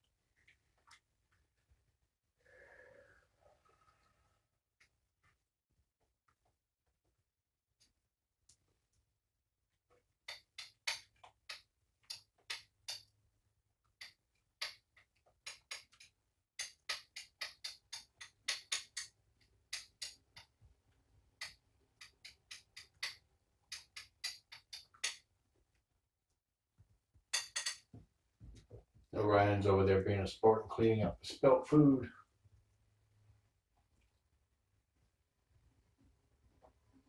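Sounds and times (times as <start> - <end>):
metal spoon tapping pill crusher: 15.4 - 19.1, 19.7 - 20.5, 21.4 - 25.2, 27.3 - 27.9.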